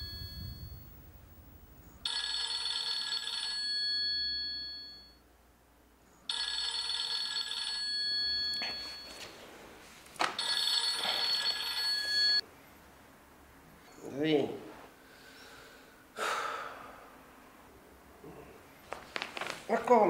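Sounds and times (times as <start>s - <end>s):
mobile phone ringtone: 0.0s - 1.0s, 2.0s - 5.2s, 6.3s - 9.3s, 10.4s - 12.4s.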